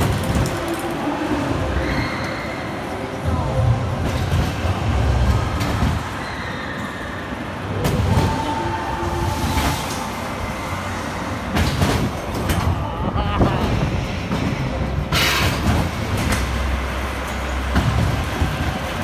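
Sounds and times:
roller coaster rumbling and clacking: 0:00.0 - 0:19.0
high squeal: 0:01.6 - 0:02.8, 0:06.1 - 0:11.2.

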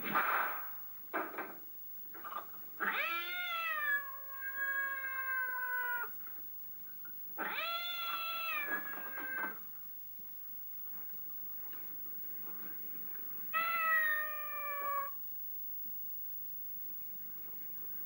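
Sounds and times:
cat meowing: 0:02.8 - 0:06.1, 0:07.4 - 0:09.7, 0:13.5 - 0:15.2.

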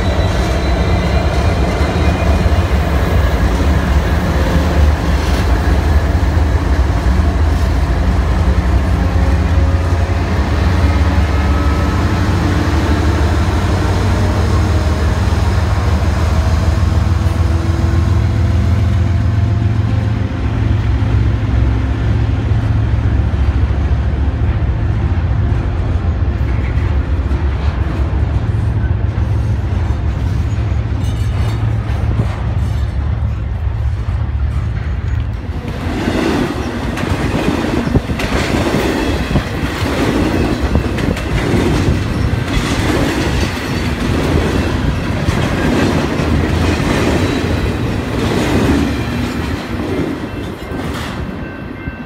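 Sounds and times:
locomotive engines rumbling: 0:00.0 - 0:52.0
freight cars rolling over rails: 0:24.9 - 0:51.3
sharp clicks of wheels on rails: 0:25.5 - 0:51.4.

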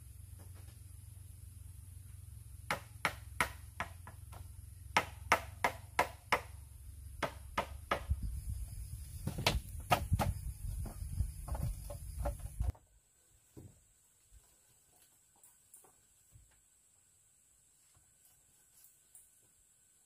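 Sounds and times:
bamboo pieces knocking: 0:09.2 - 0:12.8.

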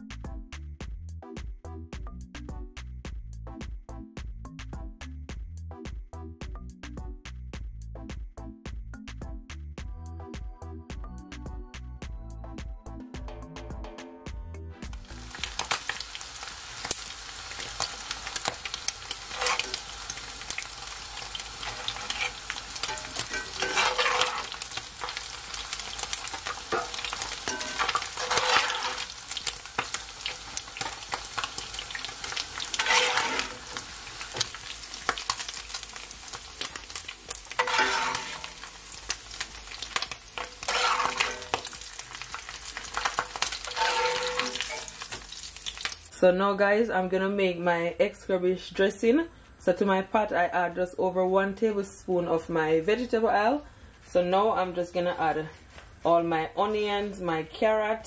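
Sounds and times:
fish sizzling in hot oil: 0:14.9 - 0:46.2
spatula scraping a pan: 0:19.1 - 0:30.0, 0:30.8 - 0:34.6, 0:36.6 - 0:38.9, 0:39.9 - 0:45.2.

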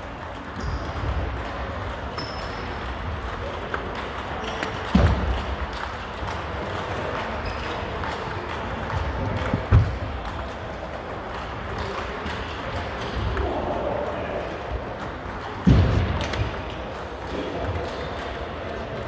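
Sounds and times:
murmuring voices: 0:08.0 - 0:19.0.

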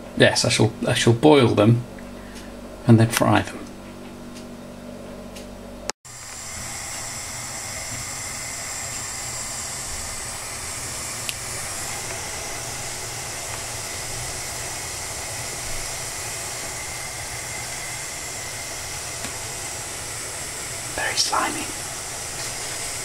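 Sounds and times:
water heating in a pan: 0:06.1 - 0:23.0.

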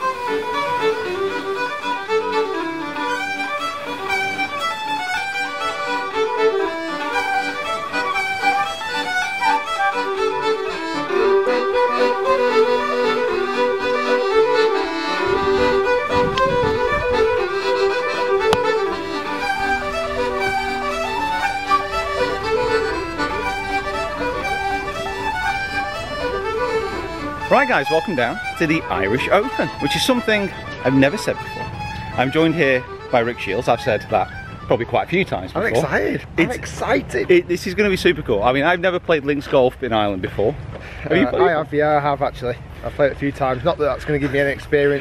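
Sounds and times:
fiddle melody: 0:00.0 - 0:45.0
low bass: 0:10.9 - 0:32.4.

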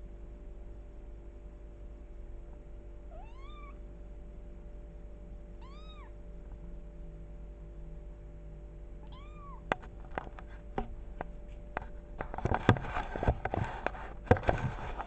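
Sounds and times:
kitten meowing: 0:03.1 - 0:03.8, 0:05.6 - 0:06.2, 0:09.0 - 0:09.6
sharp clicks and knocks: 0:09.7 - 0:15.0.

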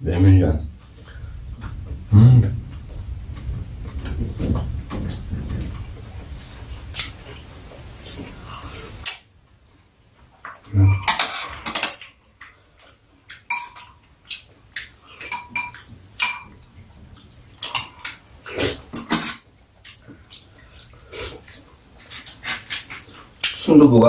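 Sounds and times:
utensils clinking on ceramic bowls: 0:10.9 - 0:12.4, 0:13.4 - 0:14.0, 0:15.2 - 0:16.5, 0:17.6 - 0:18.2, 0:18.9 - 0:19.4.

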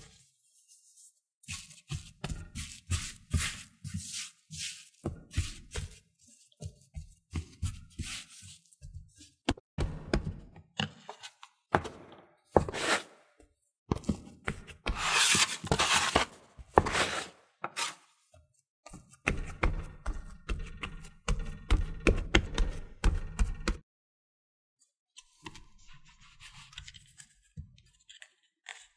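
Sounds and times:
dough scraper scraping counter: 0:00.6 - 0:09.6, 0:12.5 - 0:18.2
hands patting dough: 0:00.8 - 0:10.3.

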